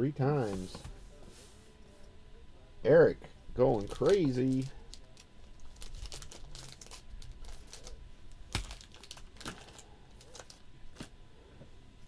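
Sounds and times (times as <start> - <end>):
crinkling rustles: 3.6 - 11.2.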